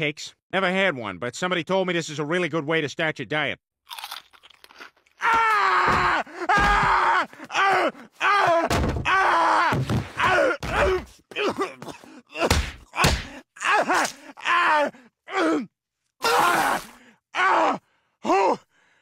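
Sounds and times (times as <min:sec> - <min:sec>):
cartoon man wailing in pain: 0:05.2 - 0:18.6
thuds: 0:05.8 - 0:07.0, 0:08.6 - 0:09.1.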